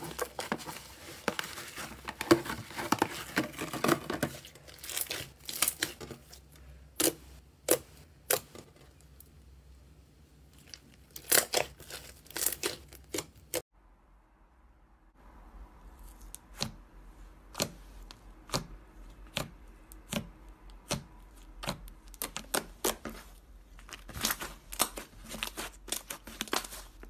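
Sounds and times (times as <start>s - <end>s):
slime crackling: 3.1s - 8.5s, 10.5s - 13.6s, 18.4s - 27.0s.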